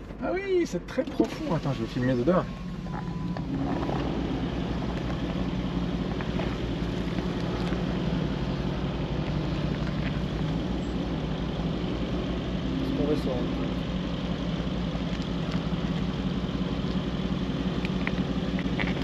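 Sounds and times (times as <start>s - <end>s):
engine running at low revs: 0.8s - 19.0s
tyres clicking over stones: 9.1s - 10.6s, 14.9s - 16.1s, 17.8s - 19.0s.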